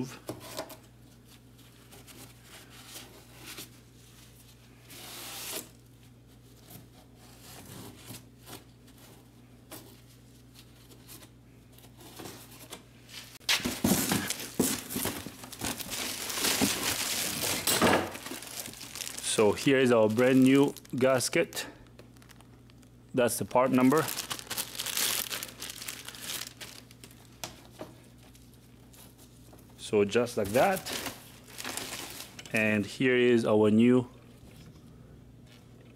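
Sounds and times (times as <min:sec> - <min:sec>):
low steady hum: 0:00.0 - 0:35.9
cardboard and plastic packaging crackling: 0:13.3 - 0:32.4.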